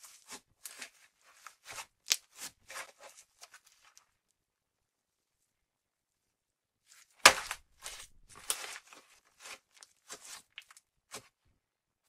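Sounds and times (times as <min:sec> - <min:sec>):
slime squishing by hand: 0:00.0 - 0:04.2, 0:06.9 - 0:11.4.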